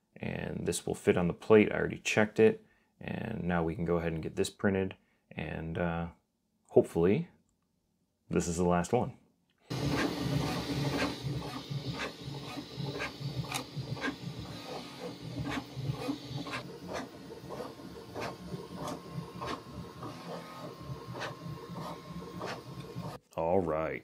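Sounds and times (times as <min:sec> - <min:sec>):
stepper motors whirring: 0:09.7 - 0:23.2.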